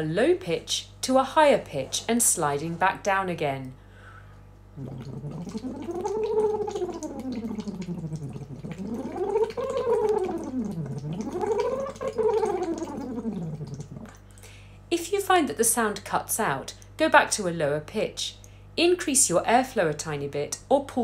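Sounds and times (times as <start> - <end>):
air bubbling in water: 4.7 - 14.3
woman singing sliding ooh: 4.8 - 14.1.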